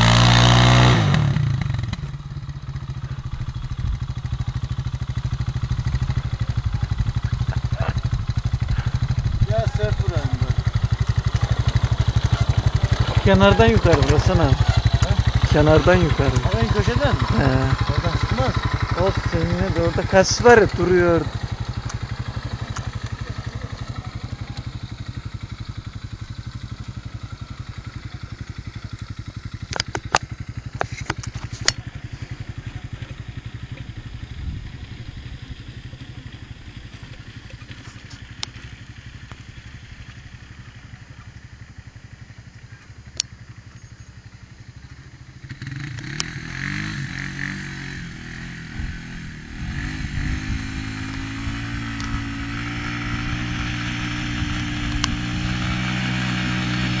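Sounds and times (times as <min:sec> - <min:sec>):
engine revving up and down: 0:00.0 - 0:02.1, 0:07.5 - 0:24.7, 0:45.5 - 0:57.0
engine running at low revs: 0:00.0 - 0:57.0
sharp clicks: 0:29.7 - 0:31.8, 0:45.9 - 0:46.3.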